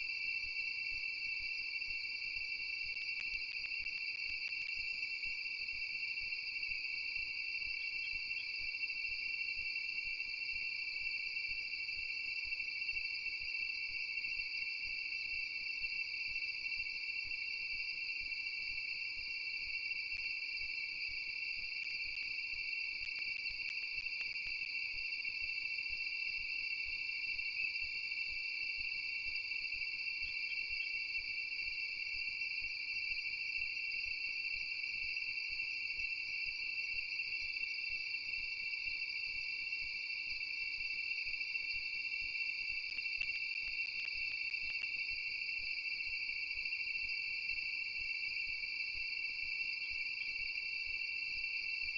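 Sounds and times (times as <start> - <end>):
faint ticks: 1.4 - 6.8, 19.2 - 28.0, 41.2 - 46.2
insects trilling: 34.5 - 51.9.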